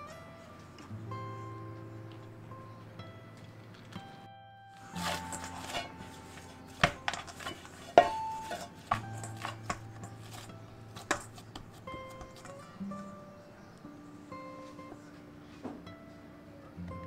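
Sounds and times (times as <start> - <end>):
dough slapping metal bowl: 4.8 - 12.8
metal bowl ringing: 4.8 - 12.8.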